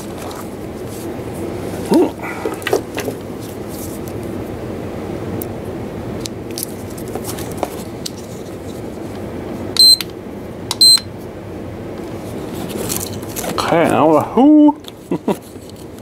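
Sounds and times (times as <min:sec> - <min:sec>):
high-pitched charger beeps: 0:09.8 - 0:10.1, 0:10.7 - 0:11.1.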